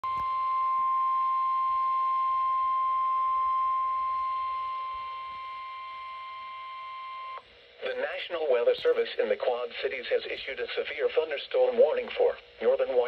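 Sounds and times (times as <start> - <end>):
steady alarm tone from speaker: 0.0 - 7.5.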